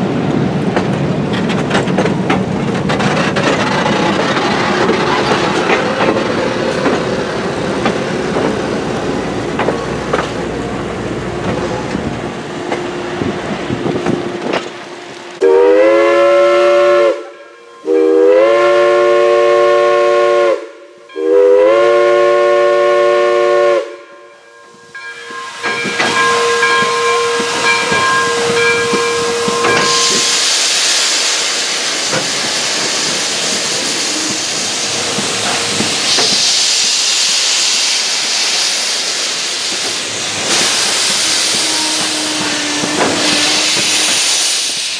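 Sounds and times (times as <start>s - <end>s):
railcars rolling on track: 0.0s - 44.9s
steam hissing: 2.4s - 17.1s, 25.2s - 44.9s
steam locomotive chime whistle: 15.4s - 30.9s, 40.5s - 44.8s.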